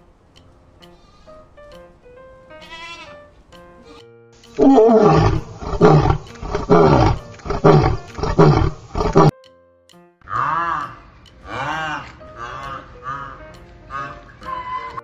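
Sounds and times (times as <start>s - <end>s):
background music: 0.0s - 15.0s
animal bleat: 2.6s - 4.0s, 4.6s - 9.3s, 10.3s - 15.0s
lion roaring: 4.6s - 9.3s.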